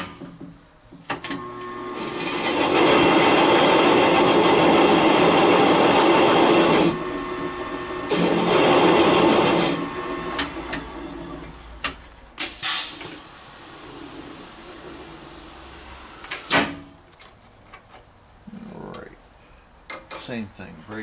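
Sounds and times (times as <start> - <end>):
machine spindle cutting metal: 1.4 - 11.9
low machine hum: 1.4 - 12.3
short hiss: 12.4 - 13.2.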